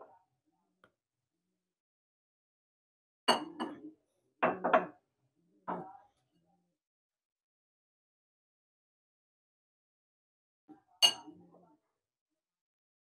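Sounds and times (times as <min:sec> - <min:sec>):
spoon clinking on ceramic bowl: 0:11.0 - 0:11.3.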